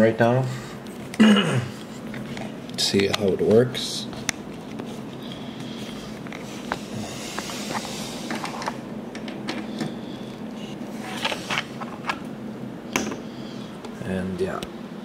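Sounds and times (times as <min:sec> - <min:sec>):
computer humming: 0:00.0 - 0:15.0
cable handling clicks and rustling: 0:01.8 - 0:12.3.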